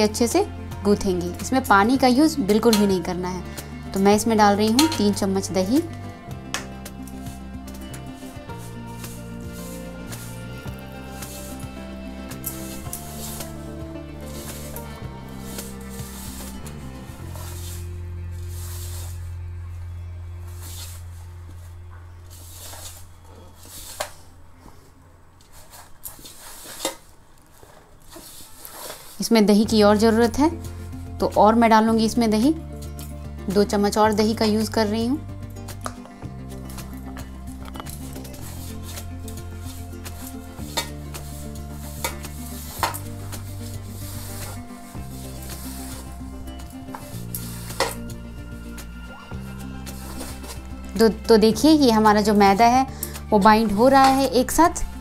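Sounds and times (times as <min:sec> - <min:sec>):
background music low notes: 0:00.0 - 0:55.0
low hum: 0:02.4 - 0:23.6
hand rubbing dough in bowl: 0:06.8 - 0:19.6, 0:20.4 - 0:24.2, 0:36.4 - 0:55.0.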